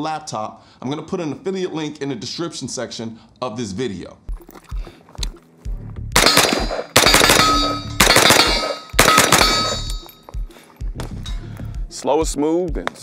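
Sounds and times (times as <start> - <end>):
rifle shots with metallic ring: 6.2 - 10.2.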